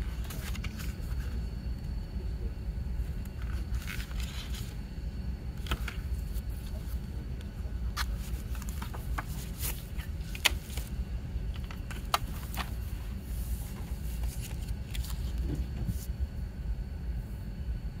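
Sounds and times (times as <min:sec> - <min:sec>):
paper pages turning: 0:00.0 - 0:01.4, 0:03.4 - 0:04.8, 0:05.6 - 0:07.1, 0:07.9 - 0:16.1
steady low rumble: 0:00.0 - 0:18.0.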